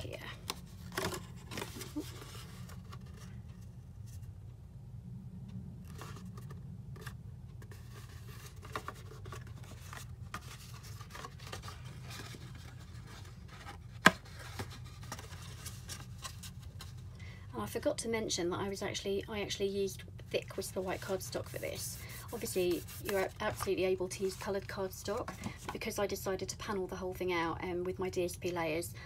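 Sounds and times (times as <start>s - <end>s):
card scraping and rustling: 0.4s - 4.3s, 5.8s - 17.1s, 20.2s - 25.9s.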